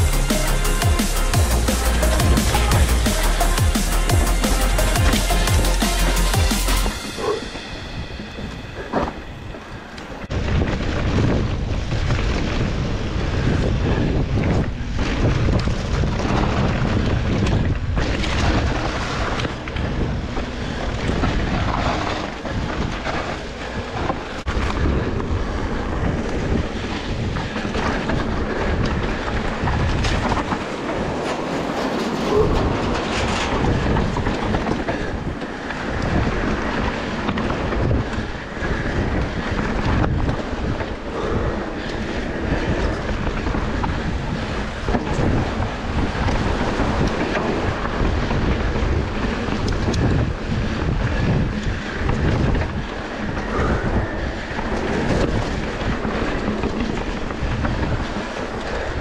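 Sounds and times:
wind buffeting microphone: 0:06.8 - 0:59.0
bike tyres rumbling on dirt trail: 0:08.2 - 0:59.0.

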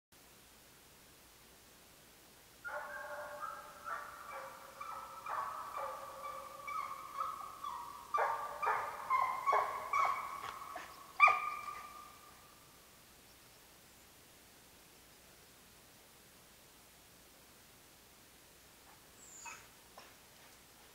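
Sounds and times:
hound baying: 0:02.6 - 0:12.3.

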